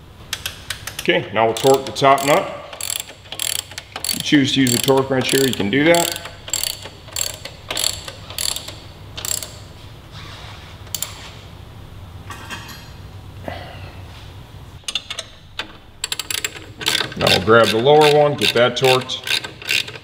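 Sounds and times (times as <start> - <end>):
socket ratchet clicking: 0.3 - 9.6, 16.0 - 20.0.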